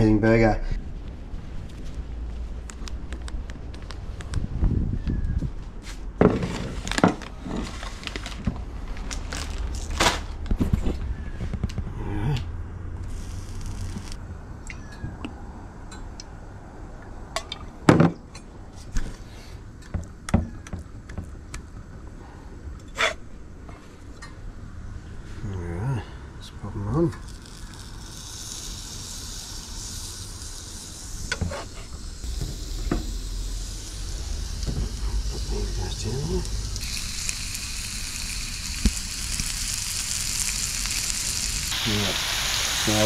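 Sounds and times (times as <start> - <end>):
brief hiss: 41.7 - 43.0.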